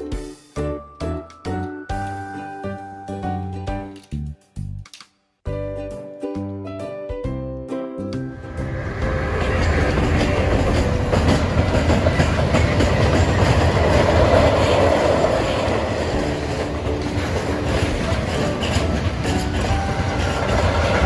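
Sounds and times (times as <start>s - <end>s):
freight train wheels rumbling on rails: 8.4s - 21.0s.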